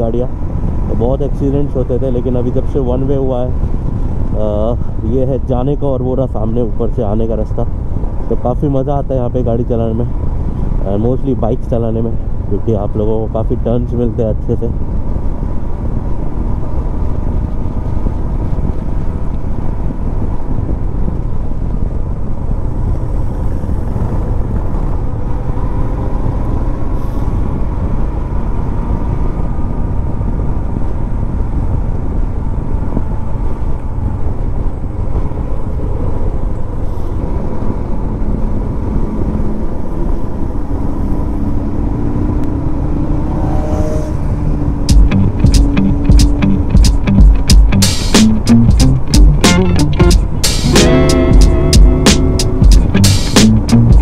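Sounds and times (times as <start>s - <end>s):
wind rushing over microphone: 0.0s - 49.4s
motorcycle engine running: 44.9s - 54.0s.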